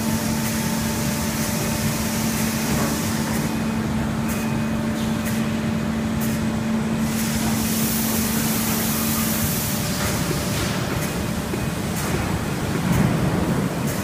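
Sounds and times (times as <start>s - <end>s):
hiss: 0.0s - 3.5s, 7.0s - 11.2s
factory machinery running: 0.0s - 14.0s.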